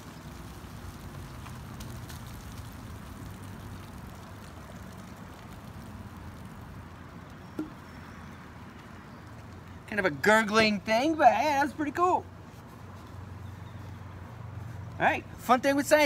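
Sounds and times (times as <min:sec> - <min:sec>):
fizzing gurgle of foam: 0:00.0 - 0:08.0
low outdoor rumble: 0:00.0 - 0:16.0.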